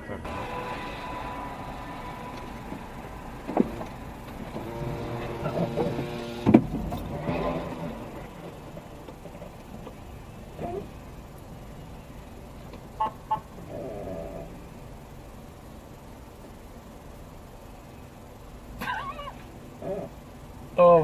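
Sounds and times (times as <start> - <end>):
road noise: 0.0 - 21.0
motorcycle engines revving: 0.2 - 11.2
motorcycle crash bang: 0.3 - 8.4.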